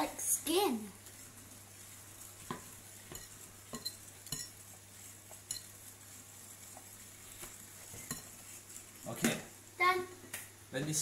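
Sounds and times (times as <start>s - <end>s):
whisk beating batter: 0.0s - 9.6s
whisk wires tapping glass: 2.4s - 5.8s.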